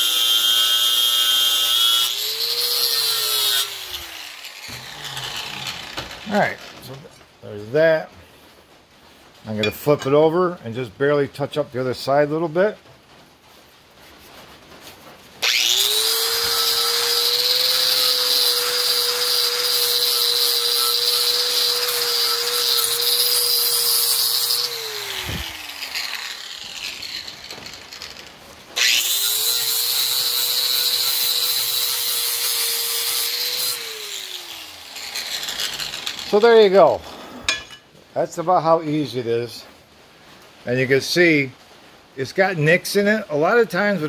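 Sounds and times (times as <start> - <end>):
angle grinder grinding steel: 0.0 - 7.1, 15.4 - 37.8.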